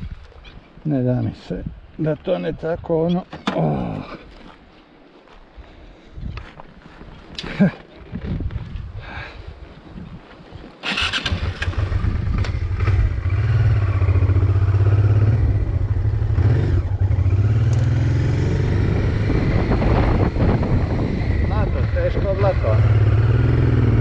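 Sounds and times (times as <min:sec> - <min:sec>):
motorcycle engine starting and revving: 0:10.8 - 0:24.0.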